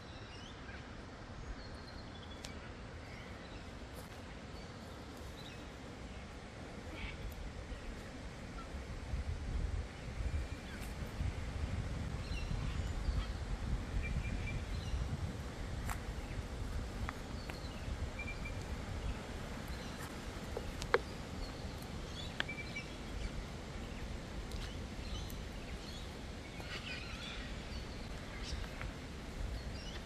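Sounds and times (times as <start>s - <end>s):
birds chirping: 15.9s - 30.0s.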